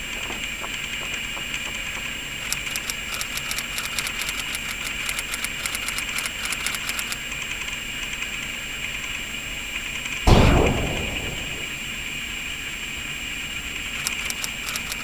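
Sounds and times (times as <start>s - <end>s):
light irregular clicks: 2.4s - 7.2s, 14.0s - 15.0s
steady high hiss: 7.2s - 15.0s.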